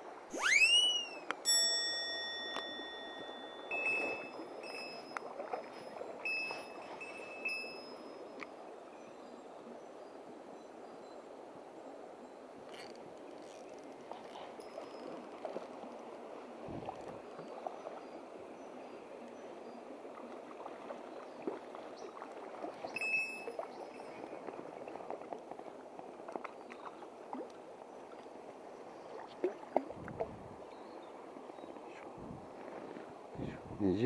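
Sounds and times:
stream water running: 0:00.0 - 0:34.0
high squeak: 0:00.3 - 0:05.1.

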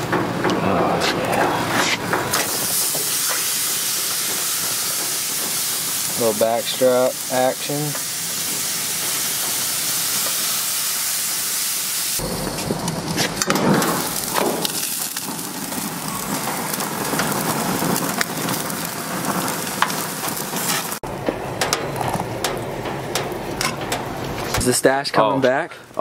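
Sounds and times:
meat sizzling on a grill: 0:01.8 - 0:21.0.

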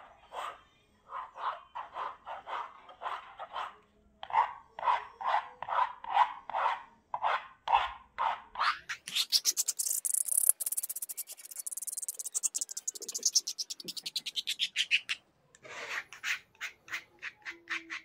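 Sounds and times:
palette knife scraping paint: 0:09.0 - 0:18.0.

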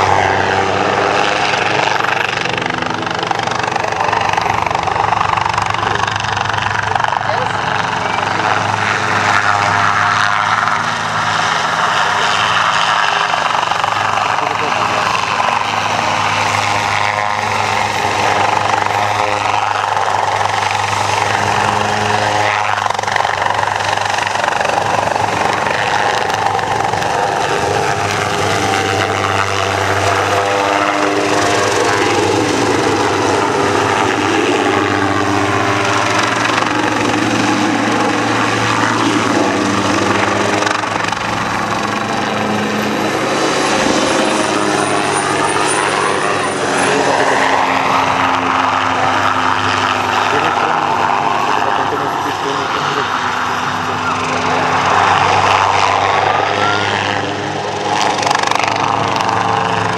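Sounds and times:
helicopter engine and rotors: 0:00.0 - 0:59.9.

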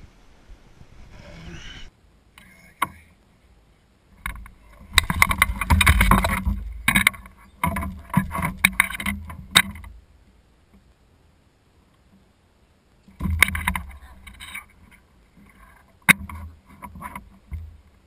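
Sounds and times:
knocks and clicks on kayak hull: 0:04.2 - 0:10.0, 0:13.0 - 0:18.0.

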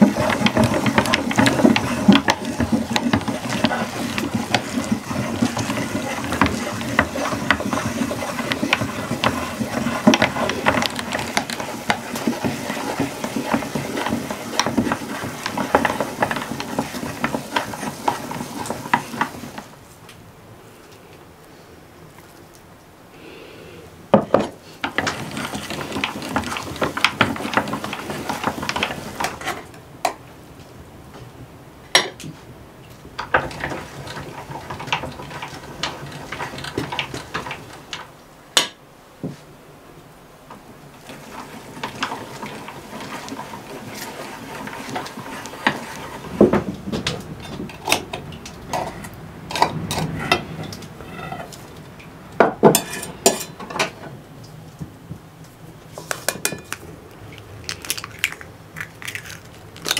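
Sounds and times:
utensils clinking against pots: 0:52.6 - 0:54.0, 0:56.2 - 0:56.8.

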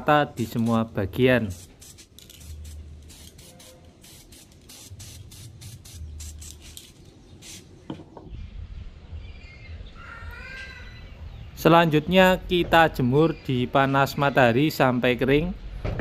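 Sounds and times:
spray paint can hissing: 0:00.4 - 0:07.8
bird calling: 0:09.2 - 0:11.5.

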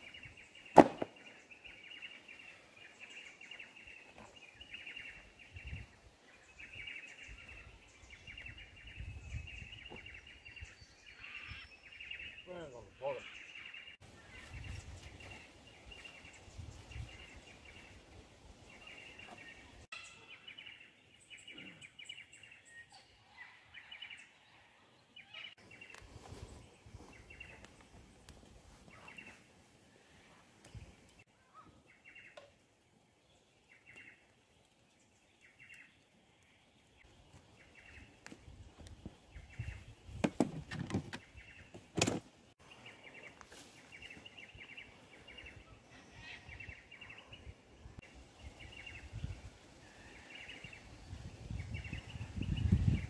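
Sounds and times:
faint bird chirps: 0:18.8 - 0:24.6.

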